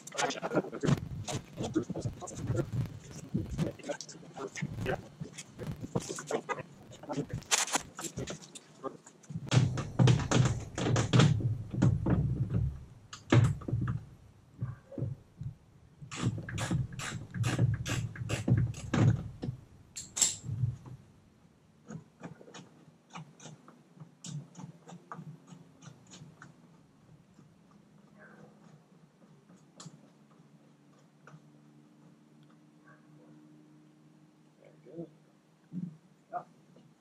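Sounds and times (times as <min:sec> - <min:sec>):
tools knocking on plastic bumper: 0:09.4 - 0:15.2.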